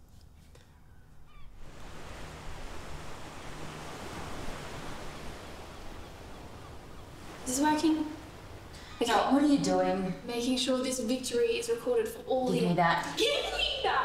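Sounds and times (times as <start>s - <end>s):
ocean surf breaking: 1.6s - 11.9s.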